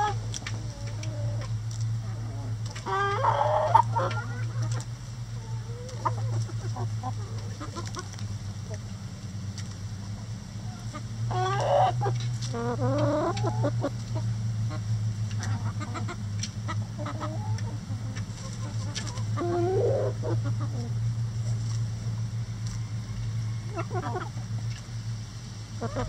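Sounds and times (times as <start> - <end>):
chickens clucking and squawking: 0.0 - 26.0.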